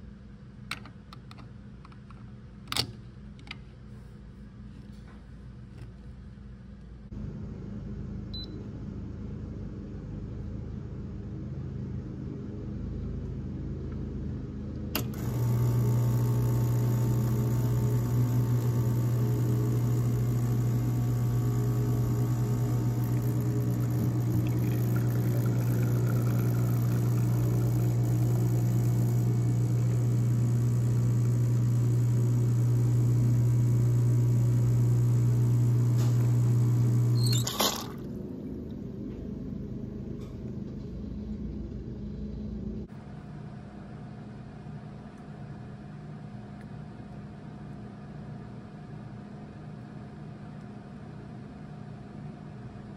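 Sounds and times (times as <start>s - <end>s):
espresso pump buzzing: 15.0s - 38.2s.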